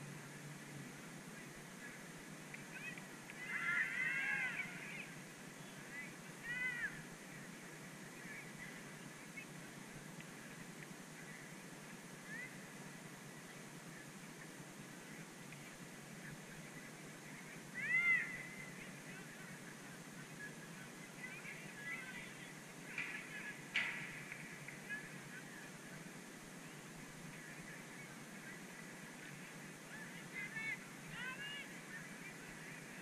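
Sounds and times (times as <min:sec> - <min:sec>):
geese honking: 0:02.8 - 0:05.1.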